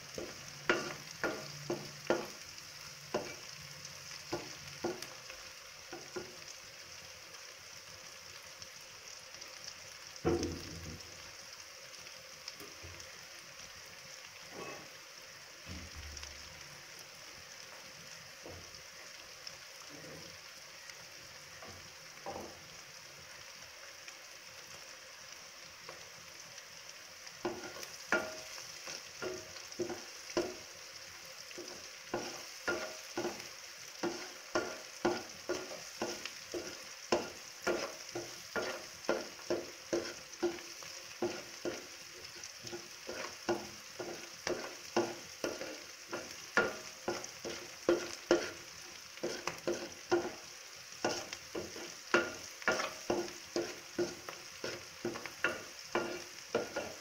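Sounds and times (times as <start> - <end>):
vegetables sizzling in oil: 0.0 - 57.0
wooden spatula scraping pan: 42.7 - 48.6, 49.2 - 50.4, 51.0 - 57.0.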